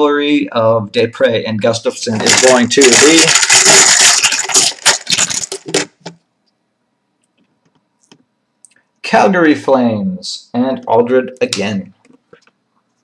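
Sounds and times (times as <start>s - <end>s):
plastic balls rattling in a cup: 2.1s - 6.1s.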